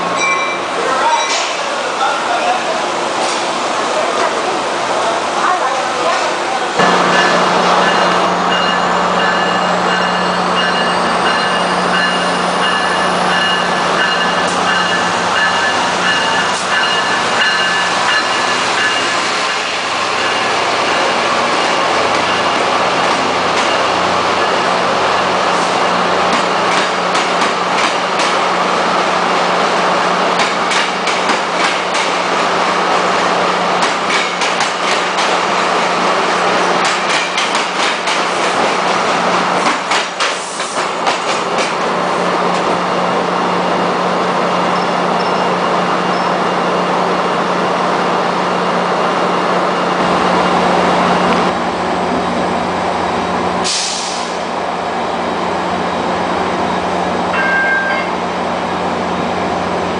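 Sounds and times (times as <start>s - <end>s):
diesel locomotive drone: 0.0s - 59.9s
train wheels clicking over rail joints: 26.2s - 28.5s, 30.4s - 32.4s, 33.8s - 36.0s, 36.6s - 41.9s.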